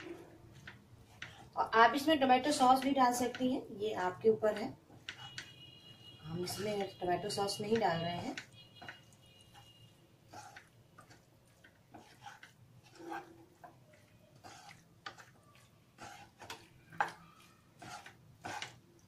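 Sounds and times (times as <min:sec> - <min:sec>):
wooden spatula scraping pan: 0:00.0 - 0:03.5, 0:04.9 - 0:05.5, 0:06.3 - 0:19.0.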